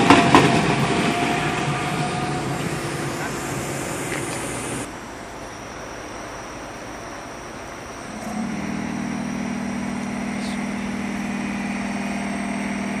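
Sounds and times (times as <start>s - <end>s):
locomotive machinery humming: 0.0s - 13.0s
auxiliary motor starting up: 8.1s - 13.0s.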